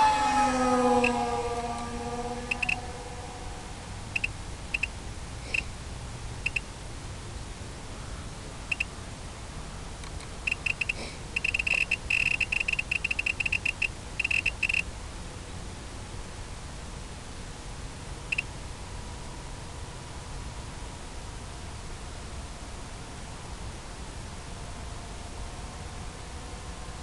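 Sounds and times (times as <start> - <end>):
steady low noise: 0.0 - 27.0
short high electronic beeps: 2.5 - 2.8, 4.2 - 4.9, 10.5 - 14.8.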